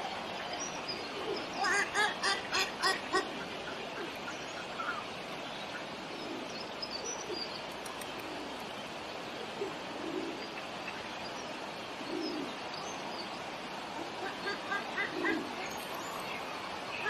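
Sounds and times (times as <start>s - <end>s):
river flowing: 0.0s - 17.0s
small birds chirping: 0.0s - 17.0s
low bird calls: 14.0s - 17.0s.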